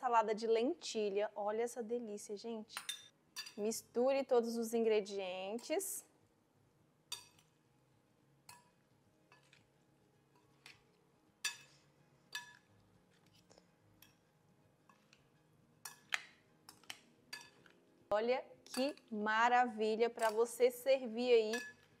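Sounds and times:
spoon clinking against bowl: 21.5 - 21.9.

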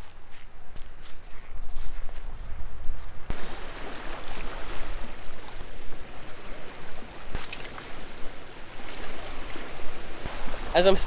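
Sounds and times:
waves washing over rocks: 3.3 - 11.0.

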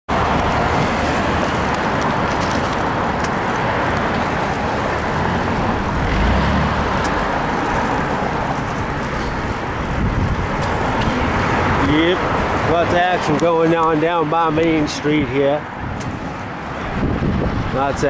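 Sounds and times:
cars passing on street: 0.1 - 18.0
heavy low rumble: 3.9 - 12.6.

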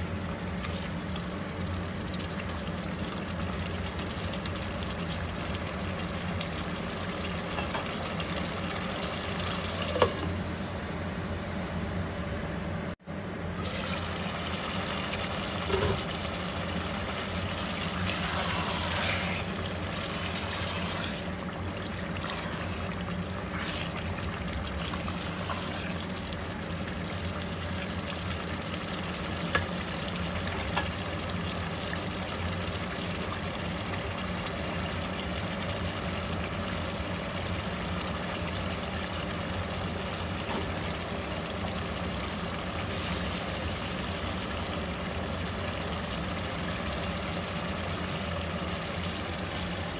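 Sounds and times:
curry bubbling in a pot: 0.0 - 10.2, 13.7 - 49.9
low steady hum: 0.0 - 49.9
spatula stirring: 17.9 - 21.4, 22.0 - 26.2.

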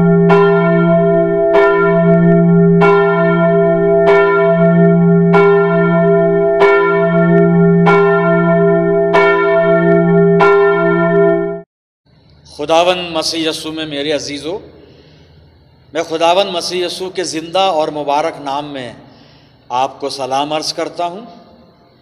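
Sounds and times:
church bell tolling: 0.0 - 11.6.

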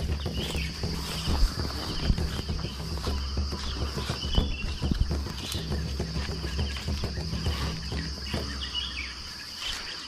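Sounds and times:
low thumps: 0.0 - 9.4
faint bird chirps: 0.0 - 10.0
high-pitched insect drone: 0.0 - 10.0
rustling close to microphone: 0.0 - 10.0.

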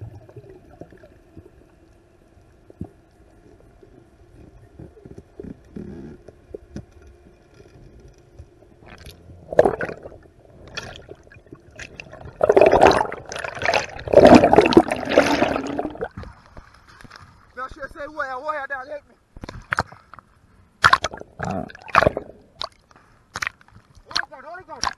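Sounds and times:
air bubbles rushing: 8.9 - 16.2, 20.8 - 22.8.

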